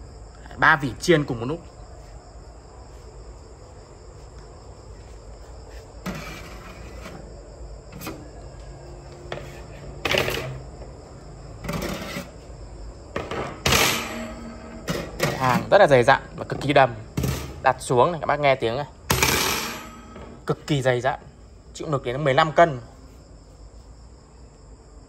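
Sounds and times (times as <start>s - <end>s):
metal oven racks knocking and rattling: 10.0s - 10.7s, 11.6s - 12.3s, 13.1s - 18.0s, 19.1s - 20.6s.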